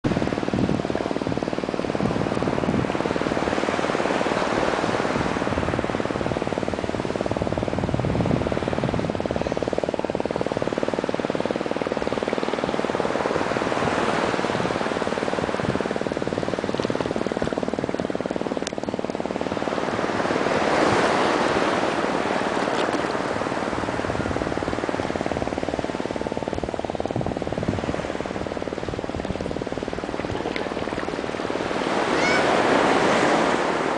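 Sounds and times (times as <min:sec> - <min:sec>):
small waves washing: 0:09.8 - 0:33.9.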